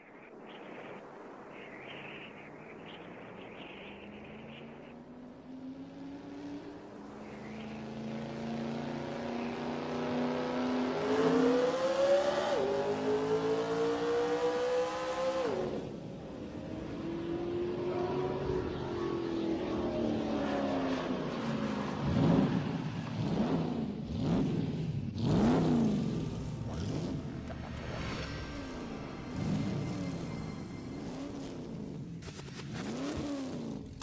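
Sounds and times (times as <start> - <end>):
motorcycle engine accelerating: 5.5 - 34.0.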